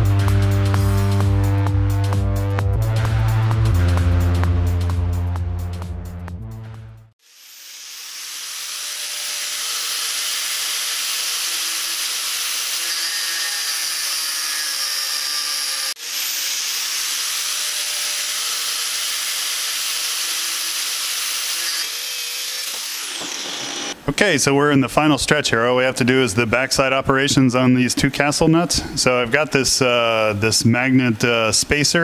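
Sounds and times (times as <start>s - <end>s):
angle grinder cutting steel: 7.2s - 24.0s.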